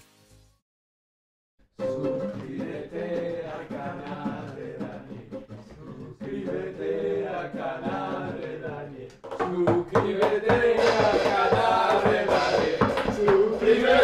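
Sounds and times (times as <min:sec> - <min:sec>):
guitar accompaniment: 0:01.8 - 0:08.4
men singing: 0:01.8 - 0:14.0.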